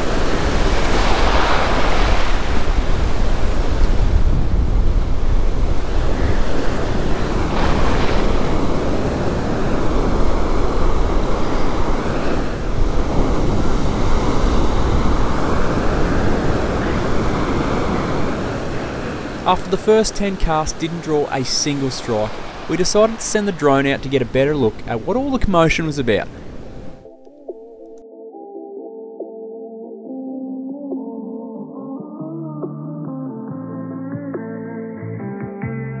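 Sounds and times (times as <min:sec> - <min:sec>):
wind buffeting microphone: 0:00.0 - 0:19.4
ocean surf washing on sand: 0:00.0 - 0:26.8.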